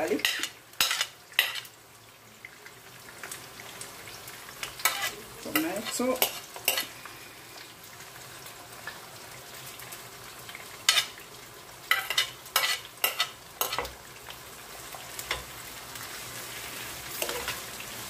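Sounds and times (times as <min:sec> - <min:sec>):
vegetables sizzling in a pan: 0:00.0 - 0:18.0
metal spoon scraping a plate: 0:00.2 - 0:01.7, 0:11.9 - 0:13.9.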